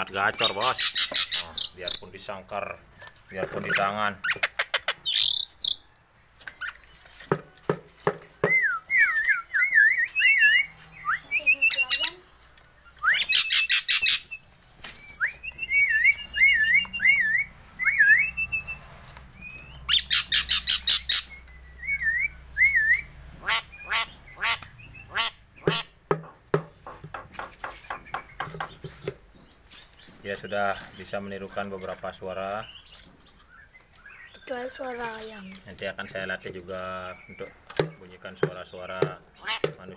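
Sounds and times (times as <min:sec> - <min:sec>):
myna calling: 0:08.4 - 0:12.3, 0:22.6 - 0:27.2, 0:37.2 - 0:39.9.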